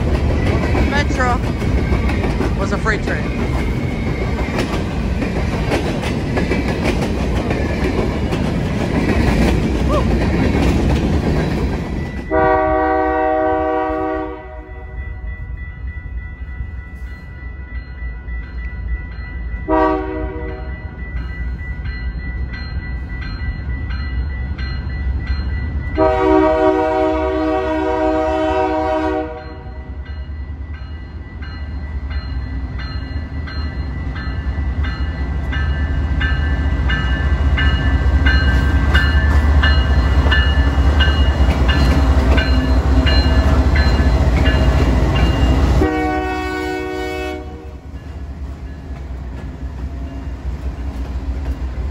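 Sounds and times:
train wheels clacking: 0:00.0 - 0:12.4, 0:32.8 - 0:45.9
locomotive air horn: 0:12.3 - 0:14.8, 0:19.7 - 0:20.7, 0:26.0 - 0:29.6, 0:45.8 - 0:47.8.

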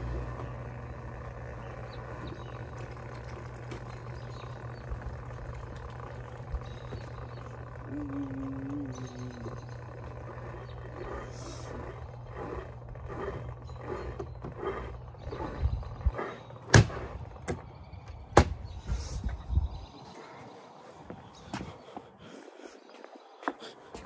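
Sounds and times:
washing machine motor humming: 0:00.0 - 0:18.8.

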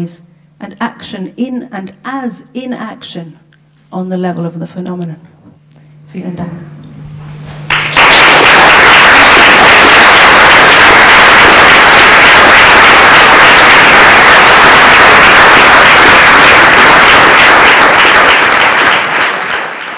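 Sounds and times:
audience applauding: 0:07.7 - 0:19.9.

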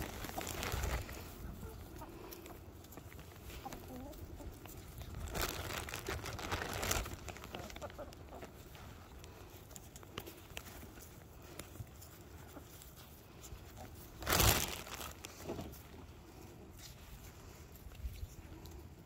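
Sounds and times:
plastic snack bag crinkling: 0:00.0 - 0:01.6, 0:04.6 - 0:08.6, 0:14.0 - 0:15.7
chickens and turkeys clucking: 0:00.0 - 0:14.7.

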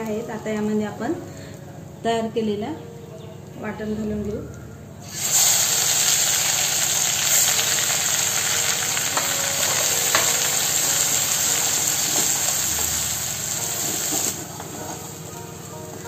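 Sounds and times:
paste sizzling in hot oil: 0:05.0 - 0:15.3.

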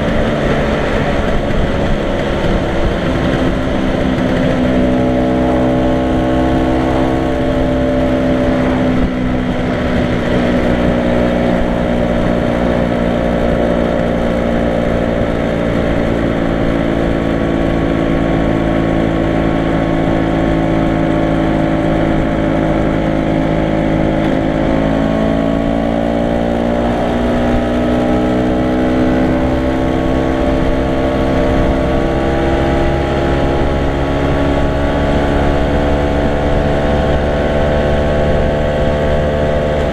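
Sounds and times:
wind rushing: 0:00.0 - 0:14.2
scooter engine running: 0:00.0 - 0:39.9.

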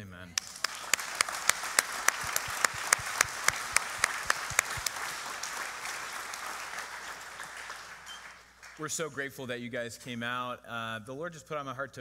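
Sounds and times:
audience applauding: 0:00.4 - 0:09.0
loud sharp claps: 0:00.4 - 0:09.1.

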